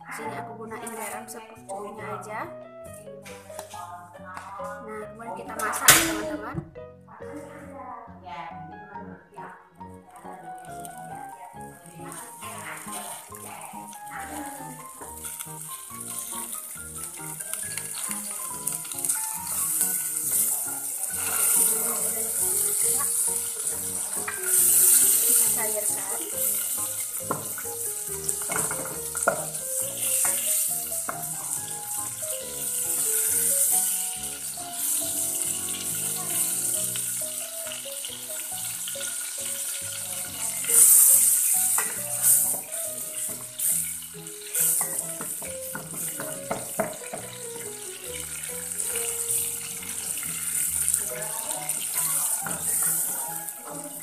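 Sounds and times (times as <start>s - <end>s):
butter sizzling in a saucepan: 0.0s - 2.3s, 9.8s - 54.0s
background music: 0.0s - 54.0s
spatula tapping a pan: 22.6s - 33.0s, 40.8s - 43.7s, 44.5s - 48.3s, 51.7s - 53.8s.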